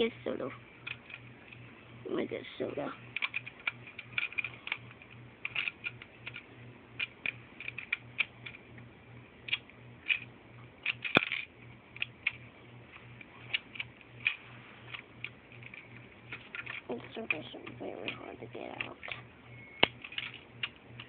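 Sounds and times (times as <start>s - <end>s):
plastic bricks clicking and rattling: 3.1s - 8.6s, 9.5s - 21.0s
plastic snap: 19.8s - 21.0s.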